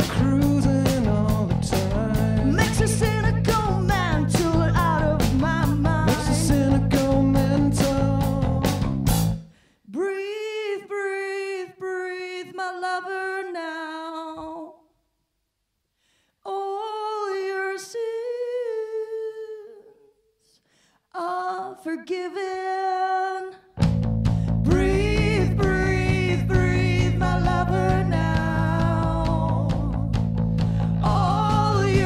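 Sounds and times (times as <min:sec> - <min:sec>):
live rock band playing: 0:00.0 - 0:09.4, 0:23.8 - 0:32.0.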